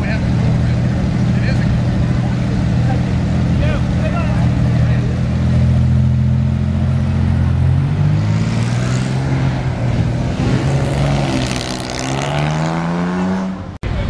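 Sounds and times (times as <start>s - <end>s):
dune buggy engine revving: 0.0s - 14.0s.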